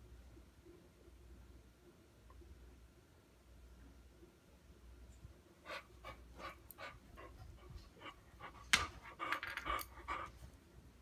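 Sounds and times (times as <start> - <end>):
dog panting: 5.6 - 10.6.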